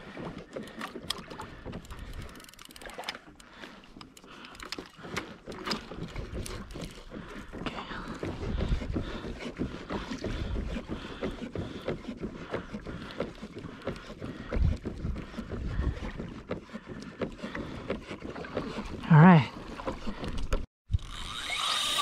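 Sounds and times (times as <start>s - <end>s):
water lapping against kayak hull: 0.0s - 21.4s
fishing reel clicks and knocks: 0.7s - 7.0s, 20.9s - 22.0s.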